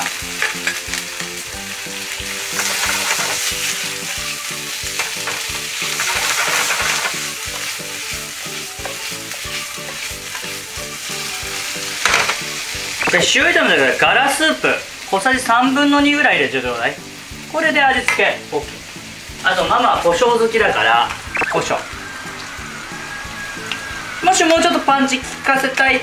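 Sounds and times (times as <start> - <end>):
food sizzling in a frying pan: 0.0 - 26.0
chopsticks stirring: 5.4 - 10.6.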